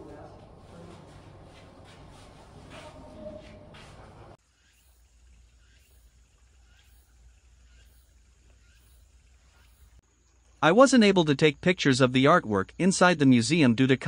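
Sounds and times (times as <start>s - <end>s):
faint insect chirping: 4.4s - 14.0s.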